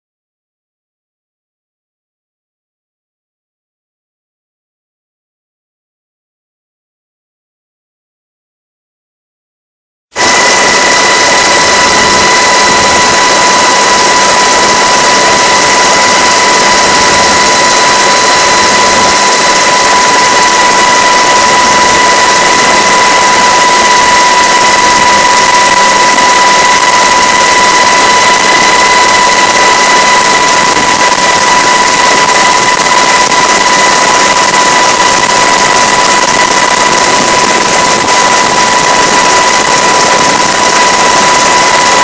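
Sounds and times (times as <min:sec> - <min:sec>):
helicopter engine and rotor noise: 0:10.2 - 0:42.0
high whine: 0:10.2 - 0:42.0.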